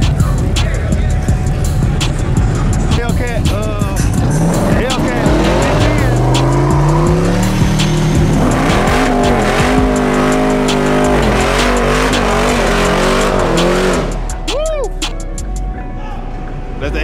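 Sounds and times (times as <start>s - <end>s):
car engine at high revs: 1.5s - 14.5s.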